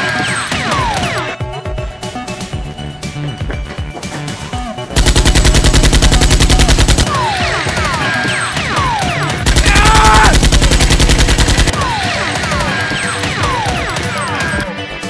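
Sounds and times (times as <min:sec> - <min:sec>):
machine-gun sound effect: 0:05.0 - 0:08.2, 0:08.8 - 0:13.8.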